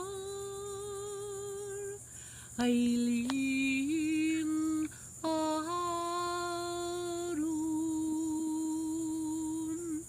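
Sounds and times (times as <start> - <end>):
woman singing long notes: 0.0 - 10.0.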